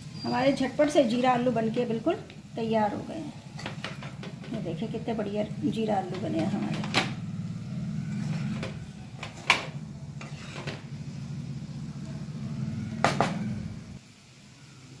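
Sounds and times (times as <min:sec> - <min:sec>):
spatula scraping metal pan: 0:08.1 - 0:09.5, 0:10.1 - 0:10.9.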